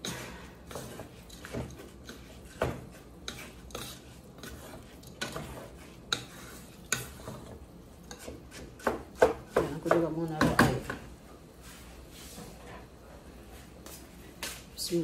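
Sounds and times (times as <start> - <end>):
spatula scraping rice in pot: 0.0 - 9.8.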